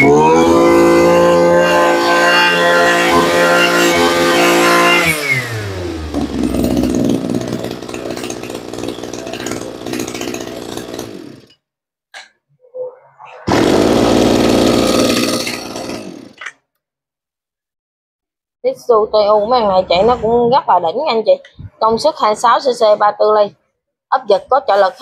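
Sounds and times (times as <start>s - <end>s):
brush-cutter engine running: 0.0s - 11.5s, 13.5s - 16.4s.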